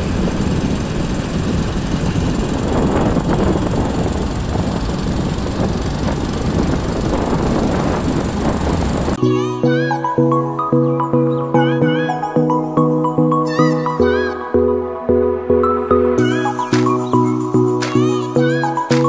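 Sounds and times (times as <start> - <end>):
motorcycle engine running: 0.0 - 9.2
wind on microphone: 0.0 - 9.2.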